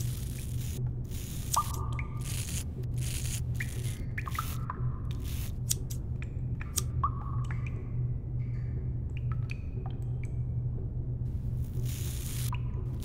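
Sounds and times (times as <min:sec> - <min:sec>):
steady low hum: 0:00.0 - 0:13.0
wet clicks and squelches: 0:03.6 - 0:07.8.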